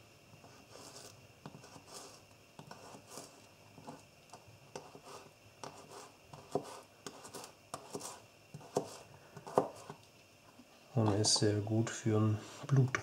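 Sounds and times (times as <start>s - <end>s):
knife tapping cutting board: 9.5s - 9.8s.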